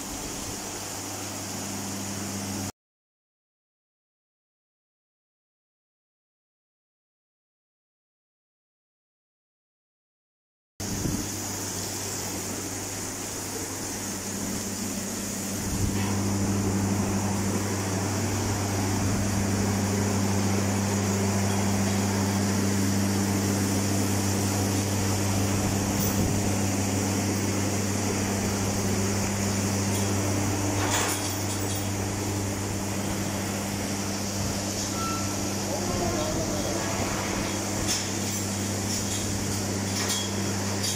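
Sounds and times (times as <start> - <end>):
electric motor hum: 10.9 - 40.8.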